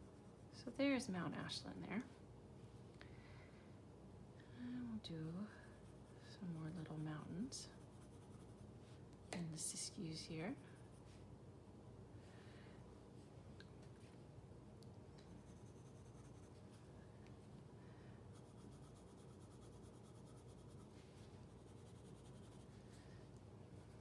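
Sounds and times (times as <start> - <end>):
low room hum: 0.0 - 24.0
pencil scratching on paper: 15.3 - 16.7, 18.3 - 20.9, 21.5 - 22.7.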